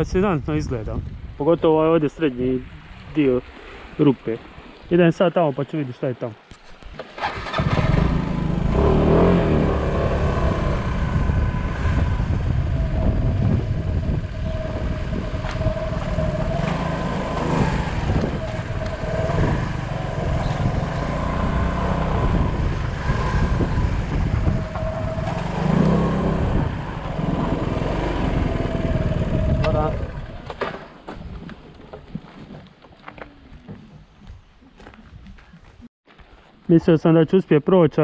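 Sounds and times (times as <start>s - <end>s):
scooter engine rumbling: 7.0s - 32.0s.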